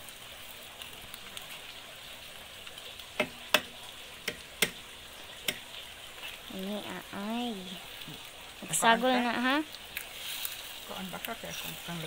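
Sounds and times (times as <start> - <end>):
egg sizzling in oil: 0.0 - 12.0
sharp pops: 3.0 - 6.4.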